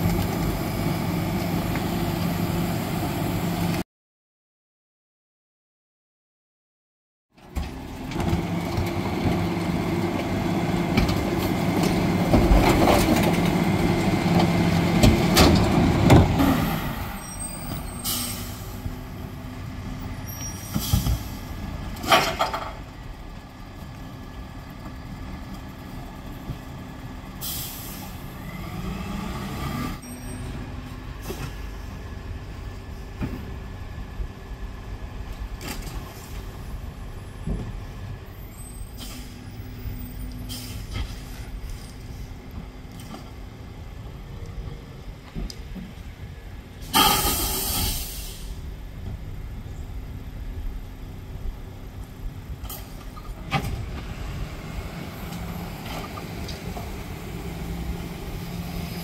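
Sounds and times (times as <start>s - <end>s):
garbage truck packer running: 7.4s - 18.1s
air brake hisses: 17.8s - 18.8s, 27.4s - 28.2s, 38.8s - 39.5s, 40.4s - 41.5s, 46.9s - 48.6s.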